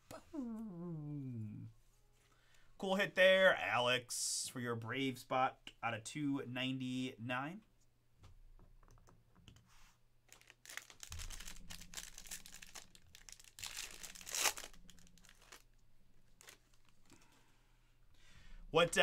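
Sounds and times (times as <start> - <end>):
foil wrapper crinkling: 10.3 - 17.3.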